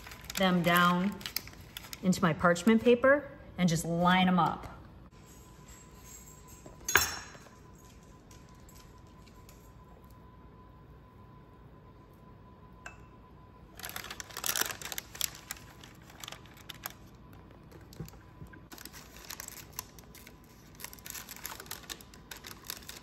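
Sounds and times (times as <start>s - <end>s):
paper and plastic crinkling: 0.0s - 2.3s, 13.7s - 23.0s.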